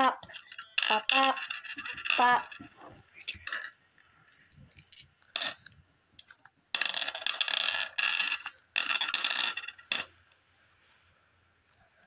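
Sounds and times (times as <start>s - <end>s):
glass gems rattling on wooden board: 0.0s - 5.8s, 6.8s - 10.2s.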